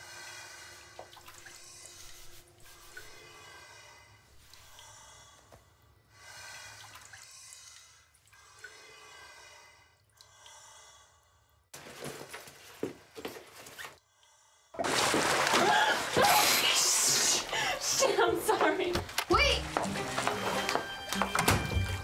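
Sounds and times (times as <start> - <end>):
breathing through a snorkel tube: 0.0 - 11.7.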